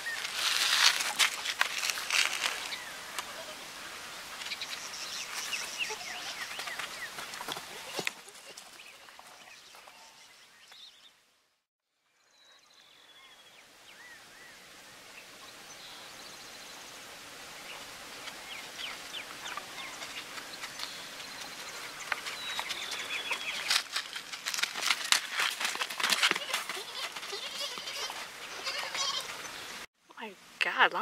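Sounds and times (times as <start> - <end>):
steady outdoor hiss: 0.0 - 31.0
small birds chirping: 4.4 - 7.6, 17.6 - 24.1.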